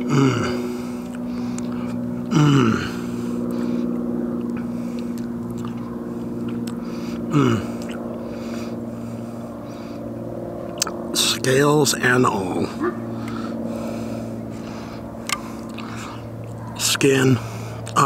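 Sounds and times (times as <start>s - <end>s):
person humming mmm: 0.0s - 3.1s, 7.3s - 8.0s
low motor hum: 0.0s - 18.0s
person eating: 4.4s - 8.1s, 10.7s - 11.0s, 15.2s - 16.6s.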